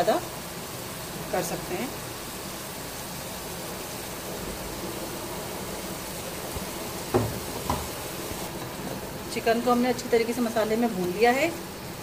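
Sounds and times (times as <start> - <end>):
chicken sizzling in oil: 0.0 - 12.0
thump: 7.1 - 7.9.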